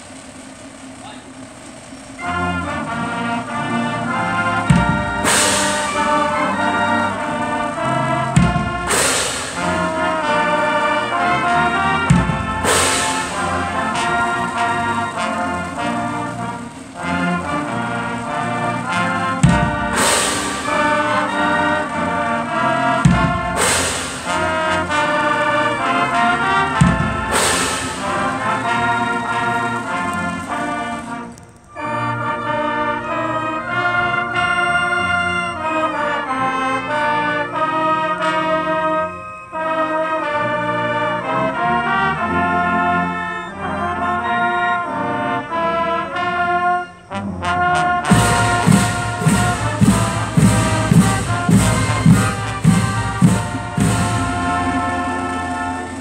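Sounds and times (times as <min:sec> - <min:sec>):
cymbal crashes: 0:00.0 - 0:31.4, 0:48.1 - 0:56.0
marching band brass chords: 0:00.0 - 0:56.0.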